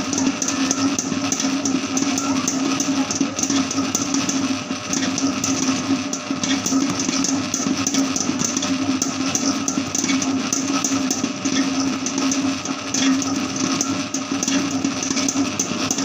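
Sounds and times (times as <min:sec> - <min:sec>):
dough hook clattering in bowl: 0:00.0 - 0:16.0
dough mixer motor humming: 0:00.0 - 0:16.0.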